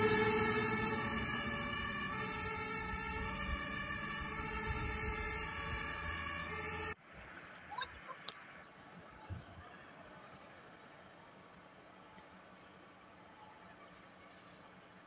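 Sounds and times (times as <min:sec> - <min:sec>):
two-tone fire engine siren: 0:00.0 - 0:07.0.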